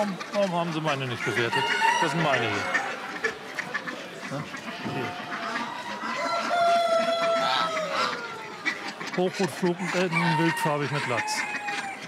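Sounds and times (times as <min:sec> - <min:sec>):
birds clucking and calling: 0:00.0 - 0:12.0
rooster crowing: 0:01.5 - 0:02.8, 0:05.8 - 0:08.4, 0:10.0 - 0:12.0.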